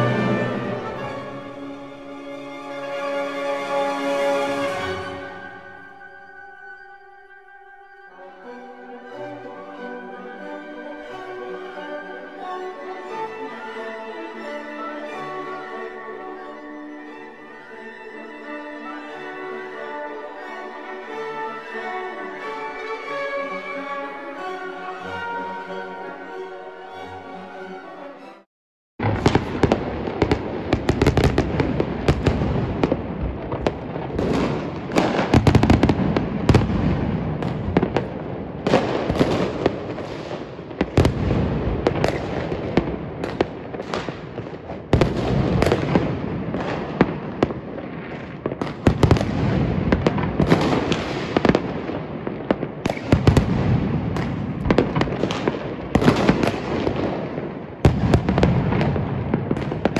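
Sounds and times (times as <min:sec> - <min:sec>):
fireworks crackling and popping: 0:29.0 - 0:59.9
loud sharp firework bangs: 0:29.0 - 0:59.9.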